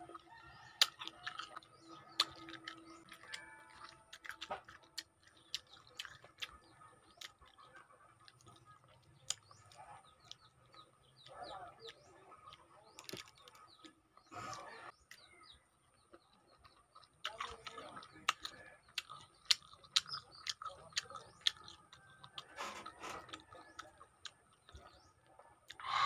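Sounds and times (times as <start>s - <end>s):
mouth eating with wet smacks: 0.0s - 25.8s
small birds chirping: 0.0s - 26.0s.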